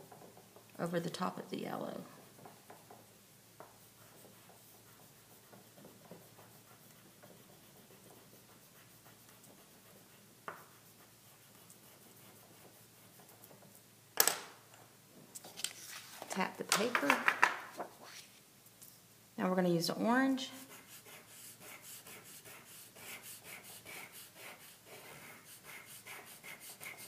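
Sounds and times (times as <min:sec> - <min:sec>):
chalk clacking on wooden desk: 0:02.3 - 0:13.8
chalk scratching on paper: 0:02.4 - 0:13.8, 0:20.4 - 0:27.0.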